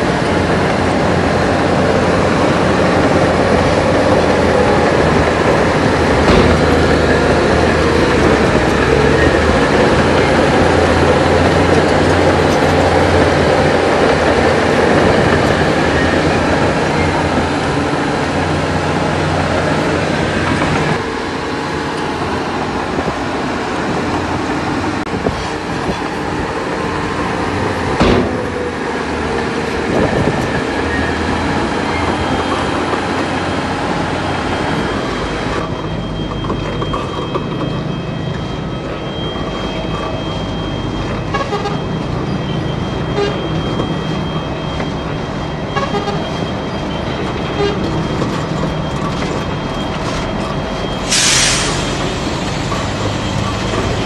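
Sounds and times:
diesel engine running: 0.0 - 54.0
sharp bang: 6.2 - 7.1, 28.0 - 28.6
hiss: 51.0 - 52.7.

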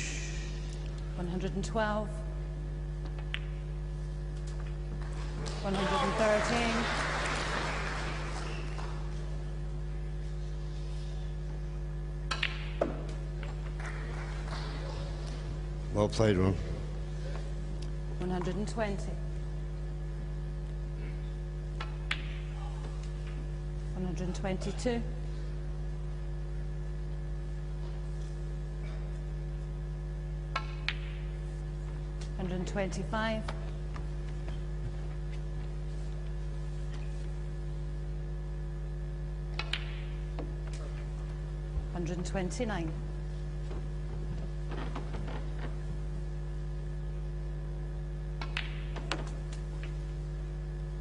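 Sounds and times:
electrical mains hum: 0.0 - 51.0
cue striking ball click: 12.3 - 13.7, 39.5 - 40.6, 48.4 - 49.4
billiard balls clicking: 39.5 - 41.0, 48.4 - 50.0.

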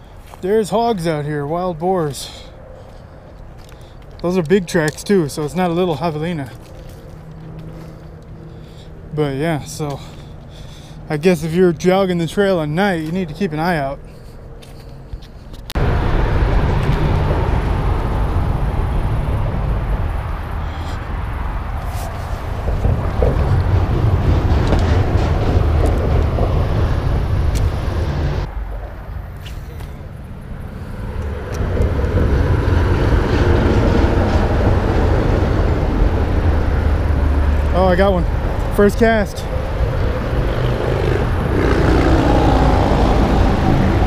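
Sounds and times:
loud steady rumbling: 15.8 - 21.0, 21.6 - 28.5, 30.4 - 44.0.

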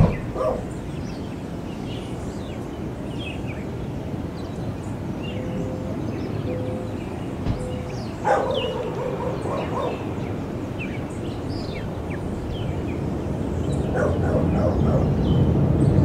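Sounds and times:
high bird chirps: 6.2 - 13.0.

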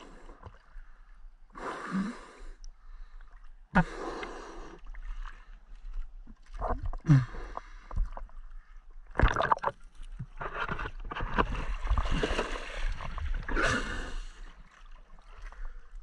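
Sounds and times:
river water splashing: 11.4 - 15.8.

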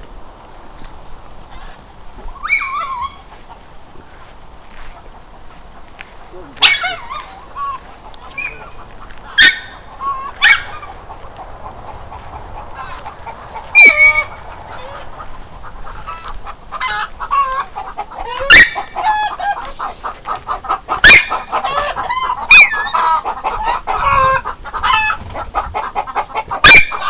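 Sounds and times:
chickens clucking and squawking: 0.1 - 27.0
loud sharp chicken cries: 1.5 - 3.3, 6.6 - 11.4, 12.1 - 27.0.

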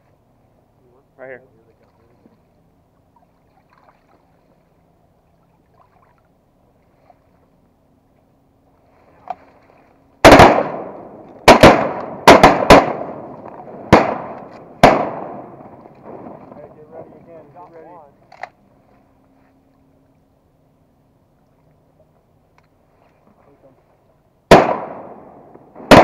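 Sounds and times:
echoing shotgun blasts: 10.2 - 16.8, 24.5 - 26.0.

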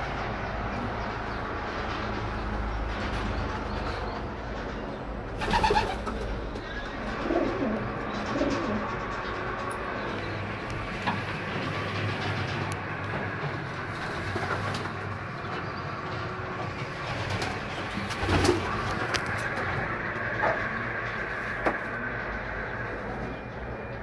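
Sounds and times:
pigeons cooing: 5.4 - 9.2.

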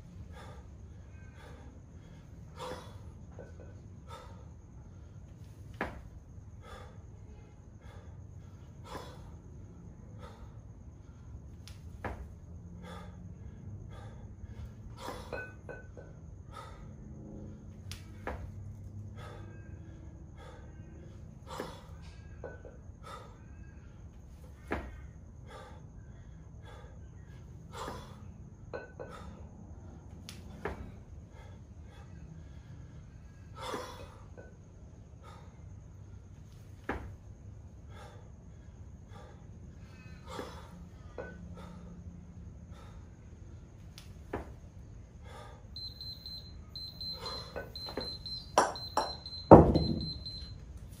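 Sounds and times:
person breathing hard: 0.0 - 3.3, 6.4 - 11.4, 12.6 - 15.5, 16.4 - 17.6, 18.9 - 22.1, 25.0 - 28.5, 37.7 - 43.6, 44.9 - 47.9
kettlebells thudding on concrete: 5.7 - 6.8, 11.8 - 13.0, 15.0 - 16.2, 18.0 - 18.6, 24.5 - 25.1, 27.8 - 29.4, 30.2 - 31.0, 36.7 - 37.4, 43.8 - 44.7, 47.1 - 50.5
alarm beeping high-pitched: 45.8 - 50.6
kettlebell knocks: 47.9 - 50.2.

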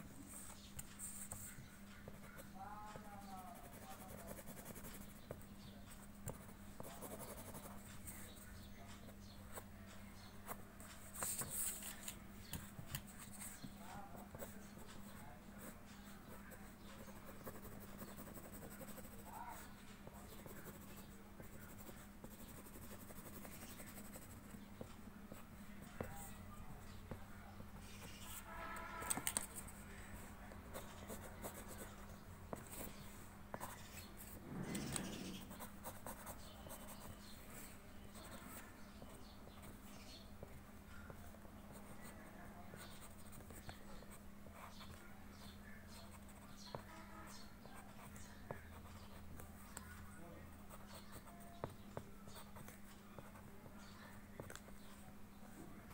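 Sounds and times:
faint low hum: 0.0 - 55.9
pencil scratching on paper: 0.4 - 5.4, 6.3 - 8.4, 15.6 - 25.0, 27.8 - 40.2, 41.1 - 49.5, 50.7 - 53.4.

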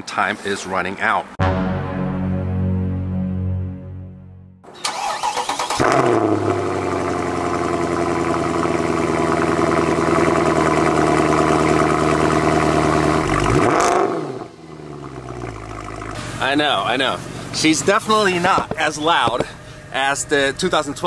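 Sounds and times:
car engine idling: 6.3 - 13.6, 14.5 - 21.0.

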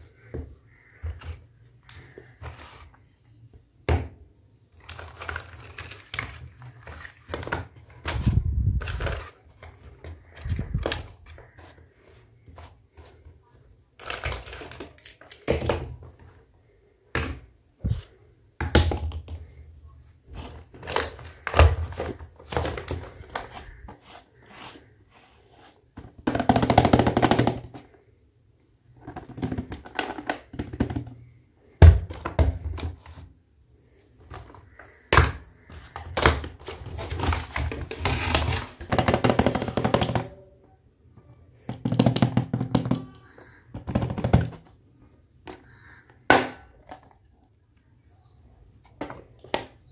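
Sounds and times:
plastic pieces clattering: 4.8 - 11.4.

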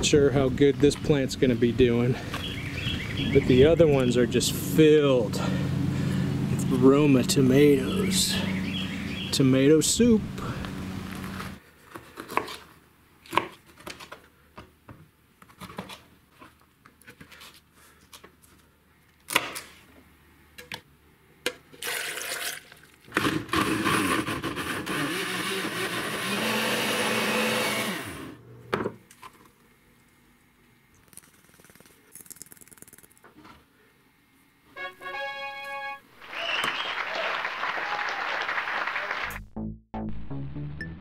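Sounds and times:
water poured into blender jar: 21.8 - 23.1
blender running: 23.2 - 28.4.

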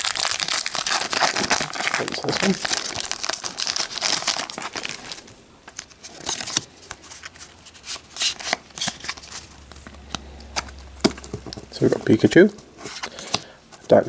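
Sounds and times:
foil wrapper crinkling: 0.0 - 12.2
trading cards sliding: 12.8 - 13.8.

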